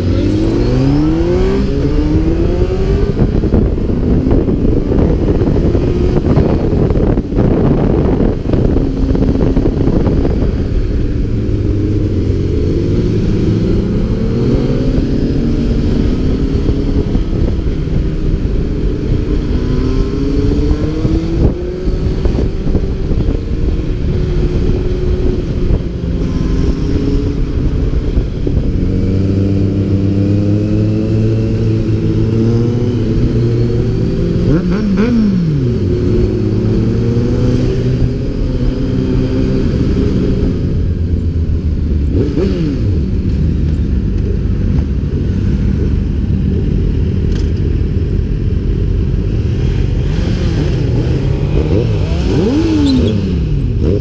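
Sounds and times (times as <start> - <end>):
engine revving: 0.0 - 41.0, 42.0 - 44.8, 49.0 - 54.0
motorcycle engine accelerating: 0.0 - 54.0.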